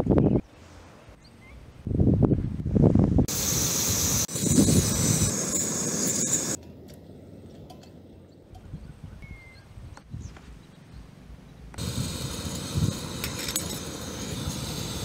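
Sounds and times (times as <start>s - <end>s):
camp stove hissing: 3.3s - 6.6s, 11.8s - 15.0s.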